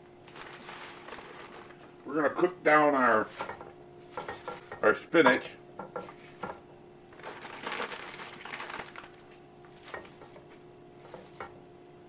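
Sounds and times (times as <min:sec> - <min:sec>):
faint steady hum: 0:00.0 - 0:12.0
spinach leaves rustling in pan: 0:00.2 - 0:02.1, 0:06.1 - 0:11.5.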